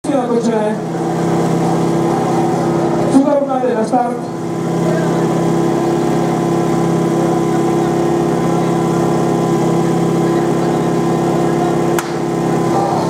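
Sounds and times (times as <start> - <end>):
pump engine idling: 0.0 - 13.0
sharp crack: 12.0 - 12.2.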